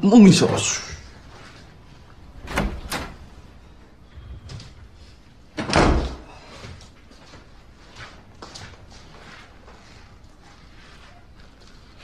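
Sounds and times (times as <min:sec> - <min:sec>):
door shutting thud: 0:02.4 - 0:03.2, 0:05.6 - 0:06.3.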